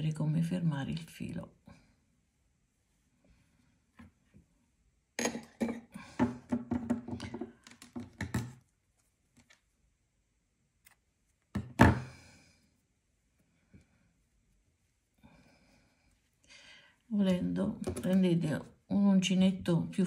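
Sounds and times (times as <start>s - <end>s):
dull knocks and thumps on a tabletop: 5.6s - 8.6s, 11.6s - 12.2s.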